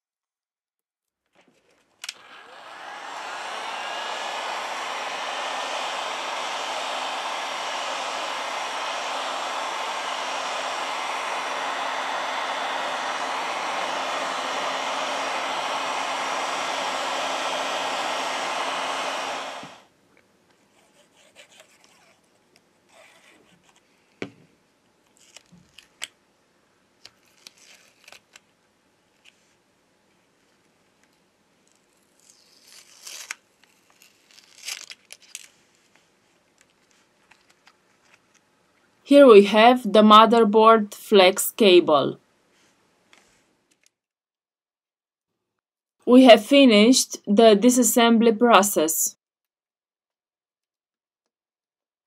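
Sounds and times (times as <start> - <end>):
heat gun blowing air: 2.0 - 19.9
faint hum: 2.1 - 19.9.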